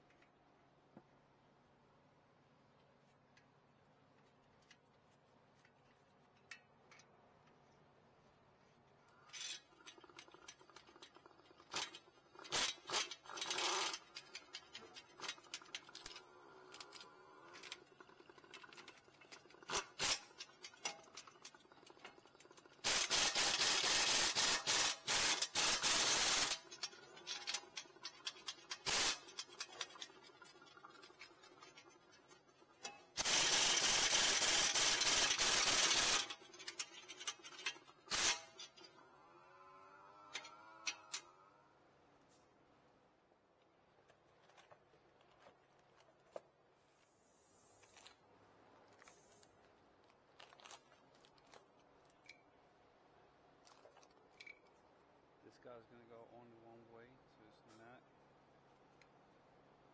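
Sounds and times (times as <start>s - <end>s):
tools clicking and knocking: 5.6s - 7.6s, 9.1s - 33.7s, 34.6s - 39.0s, 53.7s - 54.8s
impact wrench running: 9.9s - 30.1s, 33.1s - 39.4s.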